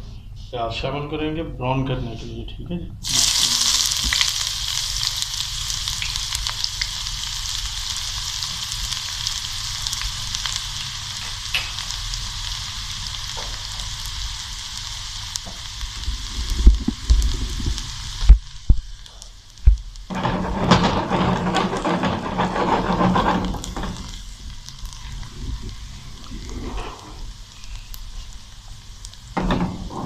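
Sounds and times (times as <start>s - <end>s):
onions sizzling in oil: 3.0s - 30.0s.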